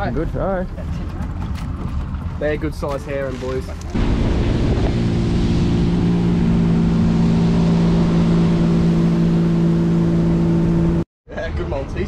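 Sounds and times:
outboard motor drone: 3.6s - 11.1s
water rushing from wake: 3.7s - 11.0s.

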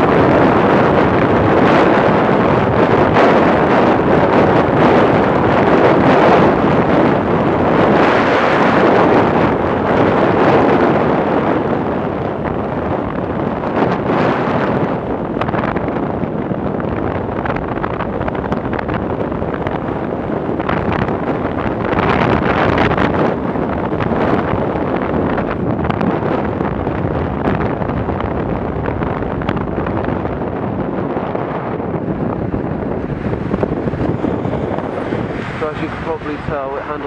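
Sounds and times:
road noise: 0.0s - 37.0s
wind rushing over microphone: 0.0s - 37.0s
motorcycle engine: 14.8s - 36.5s.

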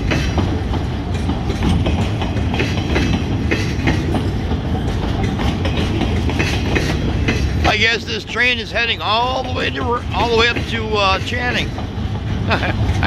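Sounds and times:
steel wheels rumbling on rails: 0.0s - 13.0s
wheels clicking over rail joints: 0.0s - 13.0s.

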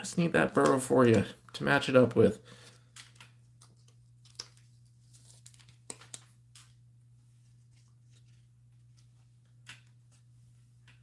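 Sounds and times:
low electrical hum: 0.0s - 11.0s
plastic clicks and crinkles: 2.6s - 6.8s.

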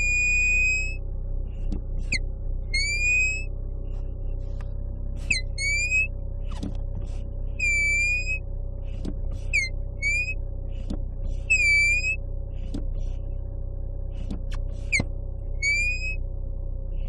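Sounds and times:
car foot pedal squeaking: 0.0s - 1.0s, 1.6s - 3.5s, 4.6s - 13.0s, 14.1s - 16.2s
steady low hum: 0.0s - 17.0s.

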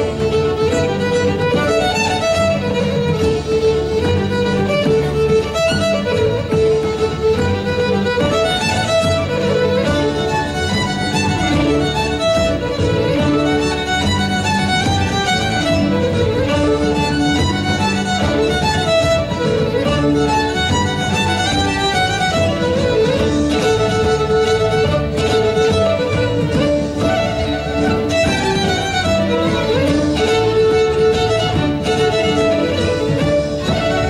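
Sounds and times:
fiddle playing dance tune: 0.0s - 34.0s
musical accompaniment: 0.0s - 34.0s.

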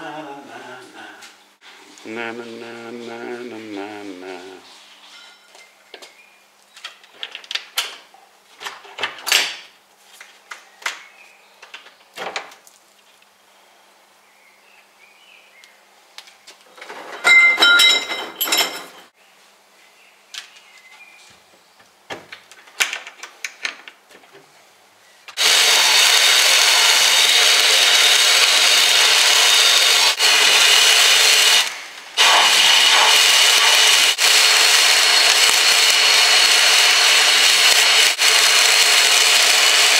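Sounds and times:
clicks and knocks of handled parts: 22.1s - 24.5s
sandblast gun hissing: 25.4s - 39.9s.

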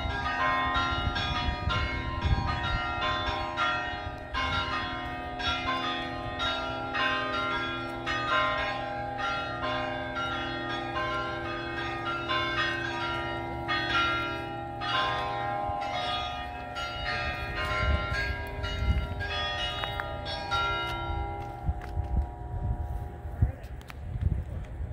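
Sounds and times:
church bells pealing: 0.0s - 23.3s.

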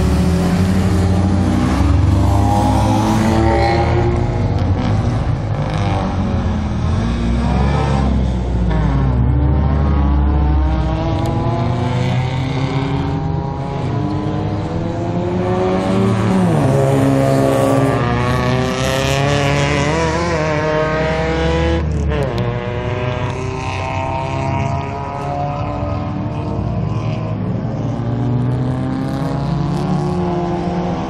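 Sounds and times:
racing car engines revving: 0.0s - 31.0s.

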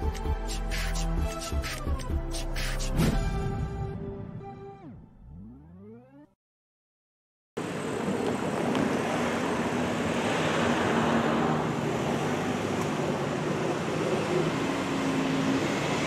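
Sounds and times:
cars driving past: 7.6s - 16.0s.

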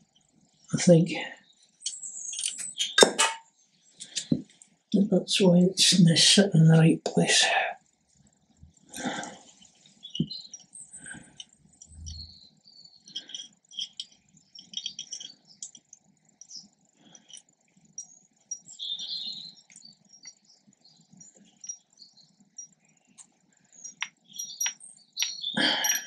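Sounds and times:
small metal clicks and rattles: 1.8s - 4.8s, 8.8s - 12.4s, 13.0s - 26.0s.

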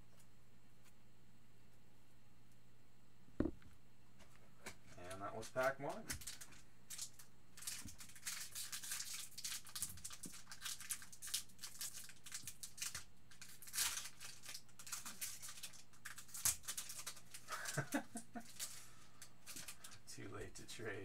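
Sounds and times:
foil wrapper crinkling: 5.5s - 20.0s.

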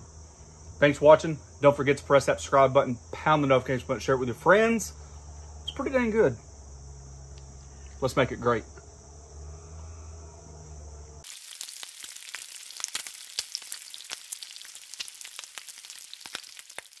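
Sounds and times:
insects buzzing: 0.0s - 17.0s
low hum: 8.8s - 11.2s
bacon sizzling on griddle: 11.2s - 17.0s.

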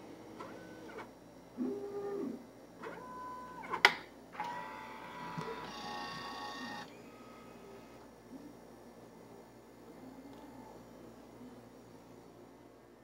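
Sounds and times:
vending machine motor whirring: 0.0s - 8.1s.

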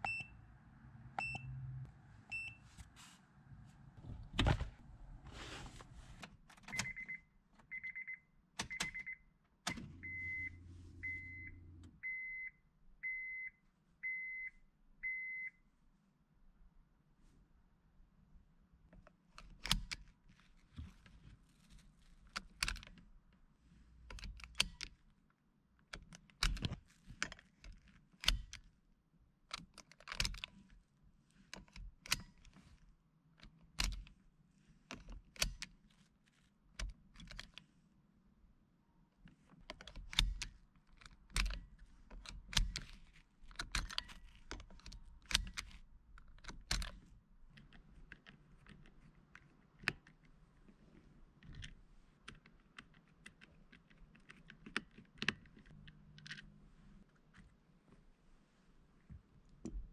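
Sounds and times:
seat belt buckle clicking: 39.7s - 47.0s.

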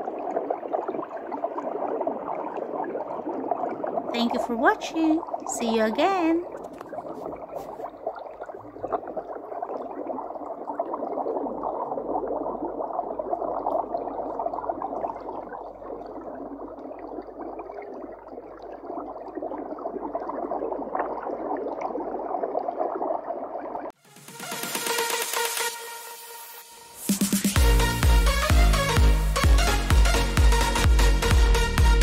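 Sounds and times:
underwater bubbling and gurgling: 0.0s - 24.0s
electronic dance music jingle: 24.0s - 32.0s.

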